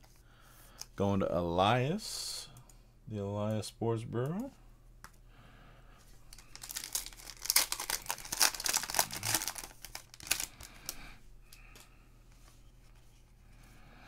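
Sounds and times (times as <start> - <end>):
faint handling of cards: 6.0 - 13.8
wrapper tearing and crinkling: 6.3 - 10.9.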